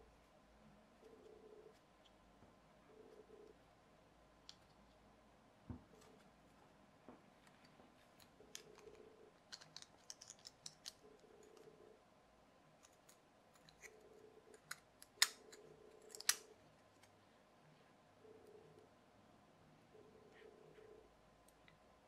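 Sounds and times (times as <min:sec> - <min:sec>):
small plastic parts clicking: 0:07.5 - 0:11.7, 0:12.8 - 0:17.1.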